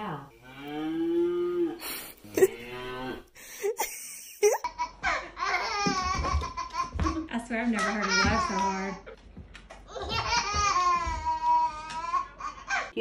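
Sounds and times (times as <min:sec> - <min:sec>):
cow moo from speaker: 0:00.4 - 0:03.3.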